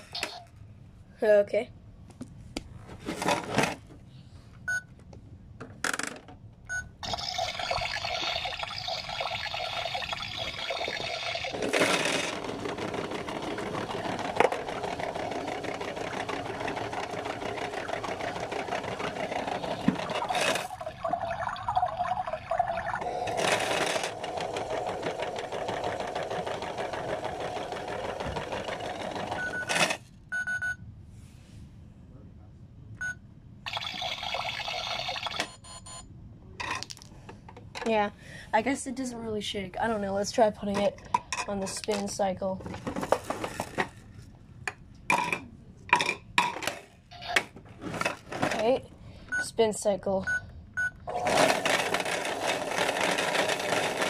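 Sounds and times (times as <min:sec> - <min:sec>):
toy washing machine motor whirring: 0:07.0 - 0:30.0, 0:33.7 - 0:35.6, 0:51.1 - 0:54.0.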